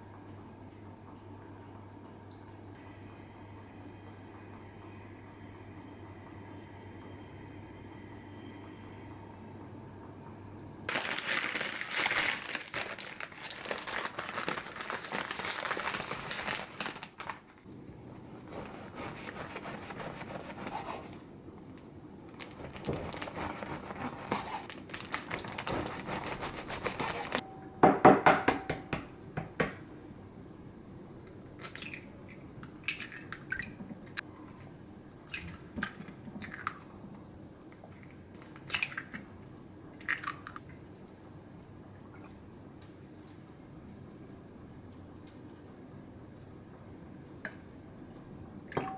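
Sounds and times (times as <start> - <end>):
paper bag crinkling: 10.9 - 17.6, 22.3 - 27.4
knife sawing through bread: 25.6 - 27.4.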